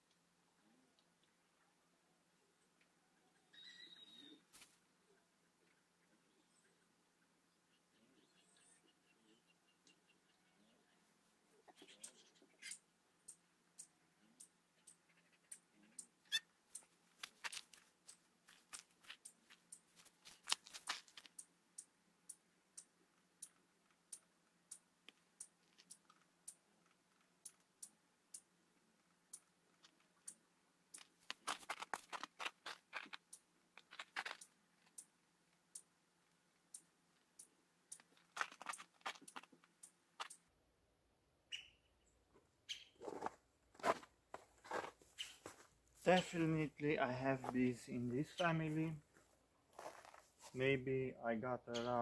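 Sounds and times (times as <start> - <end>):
rustling crackle: 16.7 - 21.5.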